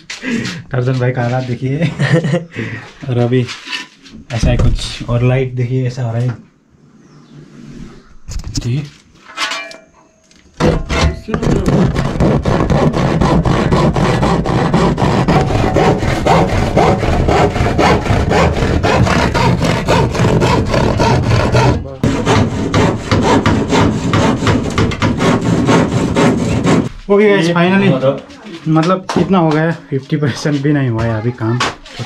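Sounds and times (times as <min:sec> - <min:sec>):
hand saw cutting plywood: 0:10.6 - 0:27.0.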